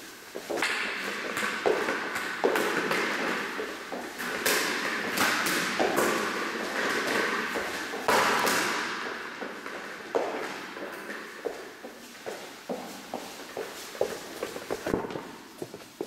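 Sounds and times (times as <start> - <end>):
rubber ball thudding in a hall: 0.5 - 11.8.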